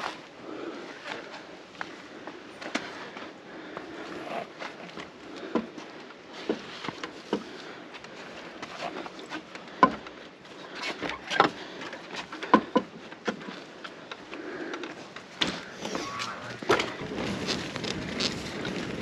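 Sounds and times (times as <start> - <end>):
mountain bike tyres rolling: 0.0 - 19.0
bike knocks and rattles: 10.8 - 13.7, 14.9 - 19.0.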